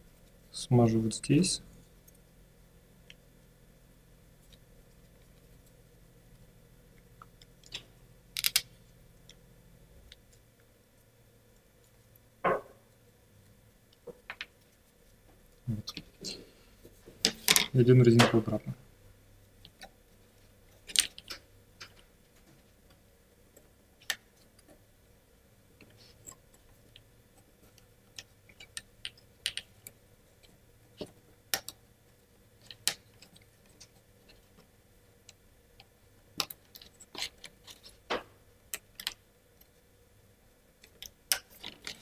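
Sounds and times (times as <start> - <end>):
plywood parts clicking: 7.2 - 8.7, 28.1 - 29.9.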